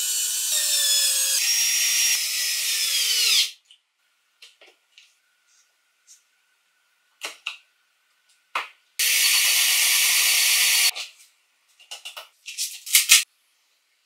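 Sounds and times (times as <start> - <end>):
cordless drill boring into wood: 0.0 - 3.5, 9.0 - 10.9.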